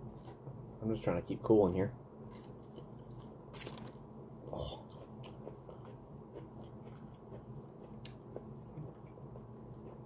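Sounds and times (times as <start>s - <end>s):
faint chewing: 2.3s - 10.0s
person biting pepper: 2.4s - 3.9s.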